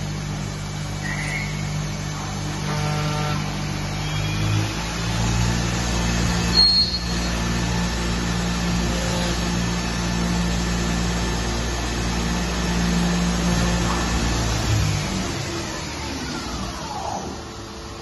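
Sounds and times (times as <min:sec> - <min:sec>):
lathe machine humming: 0:00.0 - 0:18.0
high-pitched squeal: 0:06.4 - 0:07.5.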